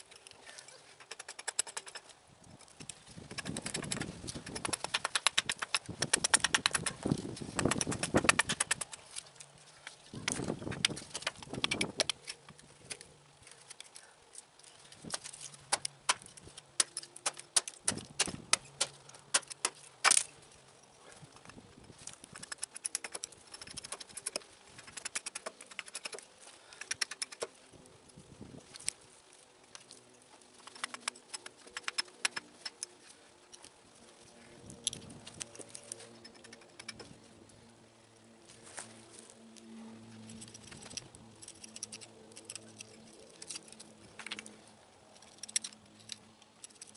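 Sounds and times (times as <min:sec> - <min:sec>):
hatchet carving wood: 0:00.8 - 0:02.1, 0:03.2 - 0:09.3, 0:10.2 - 0:14.0, 0:15.1 - 0:20.3, 0:22.0 - 0:27.6, 0:30.6 - 0:32.9
hatchet chopping wood: 0:03.3 - 0:09.0, 0:15.1 - 0:20.3.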